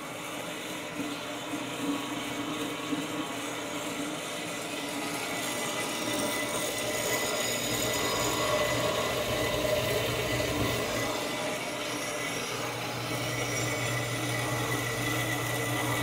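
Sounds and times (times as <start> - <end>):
bandsaw cutting steel pipe: 5.6 - 16.0.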